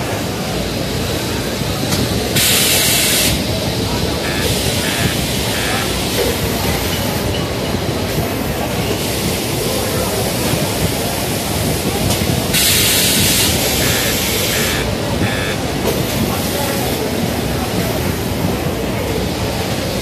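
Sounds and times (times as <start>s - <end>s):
factory machine din: 0.0s - 20.0s
steam press hiss: 0.7s - 7.3s, 8.9s - 16.6s.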